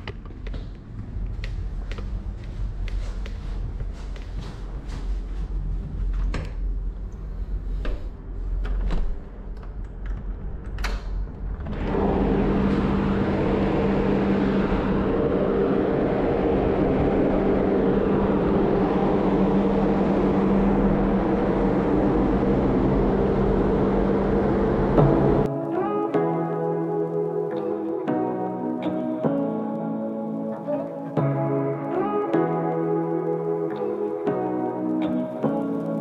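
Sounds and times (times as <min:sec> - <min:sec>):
door unlatching and opening: 0:08.6 - 0:13.7
loud machinery hum: 0:11.6 - 0:25.5.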